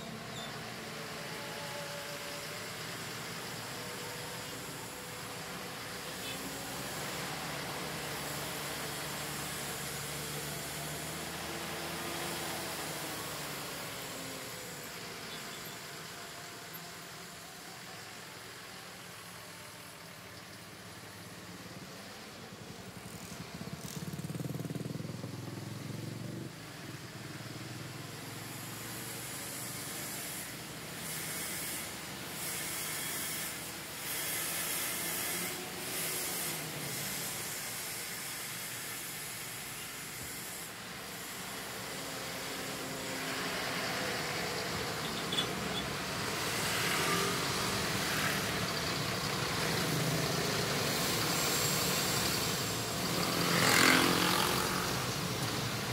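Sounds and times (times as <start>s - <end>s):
engine and road rumble: 0.0s - 55.9s.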